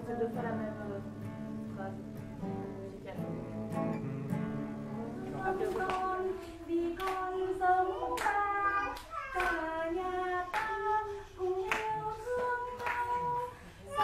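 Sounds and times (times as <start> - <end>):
woman singing: 0.0 - 3.5, 4.9 - 14.0
hand clapping: 7.0 - 7.4, 8.1 - 9.8, 10.5 - 10.8, 11.6 - 13.5.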